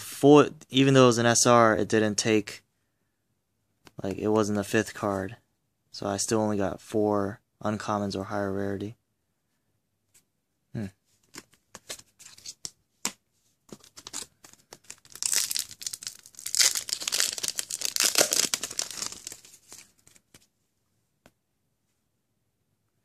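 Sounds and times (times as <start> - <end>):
wrapper crinkling and tearing: 13.7 - 20.4.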